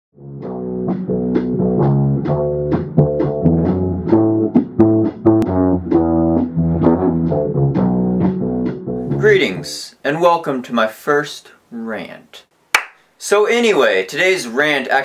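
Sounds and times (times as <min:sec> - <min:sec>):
electric bass guitar riff: 0:00.2 - 0:09.7.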